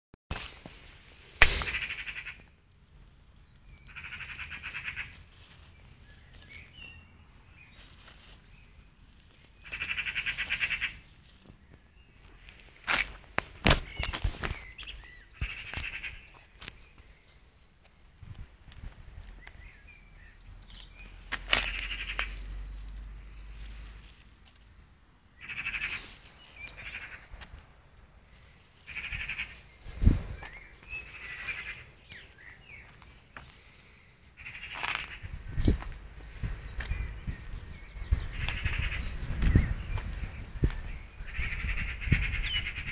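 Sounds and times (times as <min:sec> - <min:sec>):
birds calling: 0:01.4 - 0:02.7, 0:03.4 - 0:18.2, 0:18.8 - 0:42.9
bird trilling: 0:01.5 - 0:02.5, 0:03.8 - 0:05.2, 0:09.6 - 0:11.0, 0:21.6 - 0:22.5, 0:25.4 - 0:27.2, 0:30.4 - 0:32.9, 0:34.4 - 0:35.3, 0:36.9 - 0:39.9
faint bird chirps: 0:28.9 - 0:33.6.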